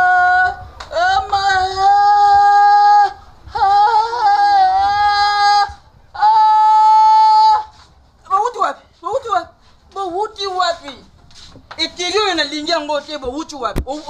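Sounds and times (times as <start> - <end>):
high voice crying out: 0.0 - 8.4.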